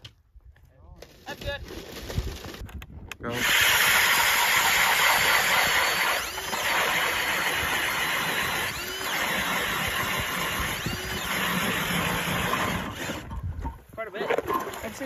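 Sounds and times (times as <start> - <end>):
ice auger drilling ice: 3.2 - 15.0.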